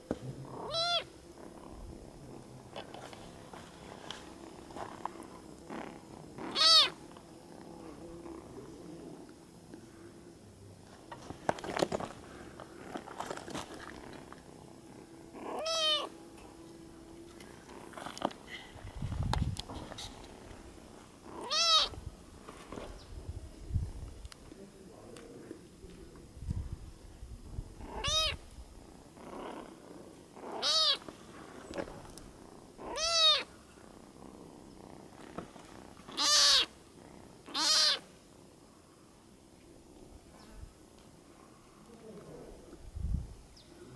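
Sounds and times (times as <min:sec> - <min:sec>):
kitten meowing: 0:00.6 - 0:01.1, 0:06.4 - 0:07.0, 0:15.4 - 0:16.1, 0:21.4 - 0:22.0, 0:27.9 - 0:28.4, 0:30.5 - 0:31.0, 0:32.8 - 0:33.5, 0:36.1 - 0:36.7, 0:37.5 - 0:38.0.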